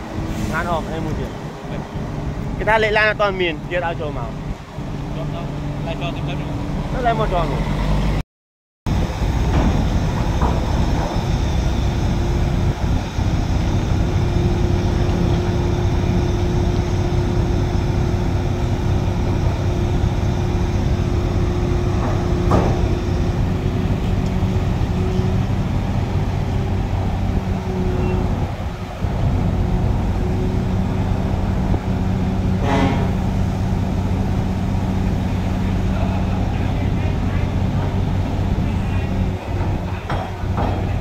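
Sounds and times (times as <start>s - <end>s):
truck diesel engine running: 8.9s - 41.0s.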